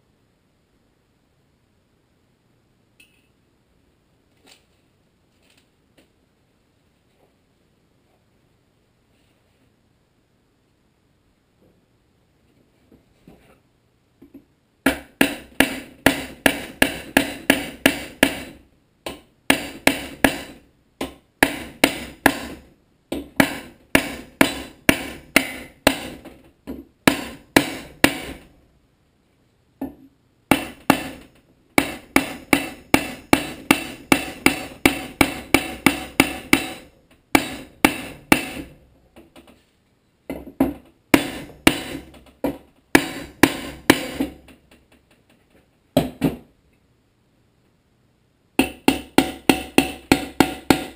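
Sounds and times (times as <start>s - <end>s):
hammer knocking on wooden block: 14.3s - 28.4s, 29.8s - 39.5s, 40.3s - 44.6s, 48.6s - 50.9s.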